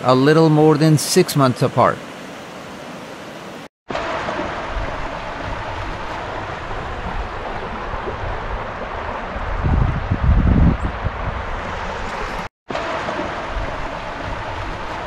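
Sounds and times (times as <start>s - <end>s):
water rushing over rocks: 0.0s - 15.0s
wind rumbling on microphone: 4.4s - 12.5s, 13.4s - 15.0s.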